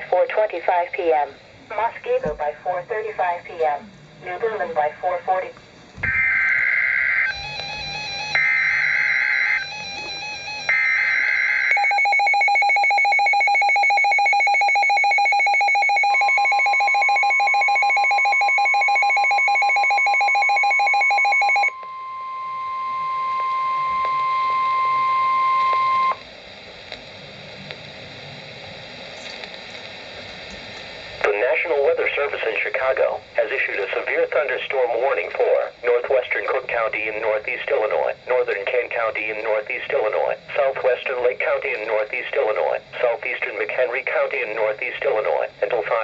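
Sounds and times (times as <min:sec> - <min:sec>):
screeching data bursts: 0:06.0 - 0:21.8
steady warning alarm tone: 0:06.0 - 0:26.2
fast-pulsing alarm beep: 0:06.3 - 0:26.2.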